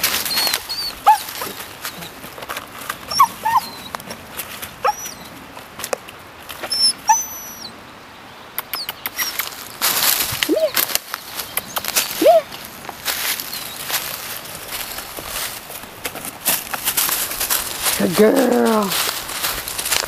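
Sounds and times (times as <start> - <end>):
puppy whimpering: 0.2 - 2.2, 3.1 - 4.0, 4.8 - 5.2, 6.7 - 7.7.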